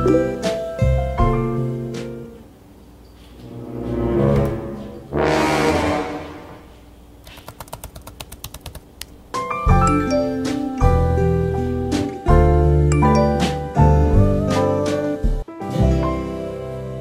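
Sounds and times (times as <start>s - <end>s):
music: 0.0s - 2.5s, 3.3s - 6.5s, 9.3s - 17.0s
rapid clicks: 7.2s - 9.2s.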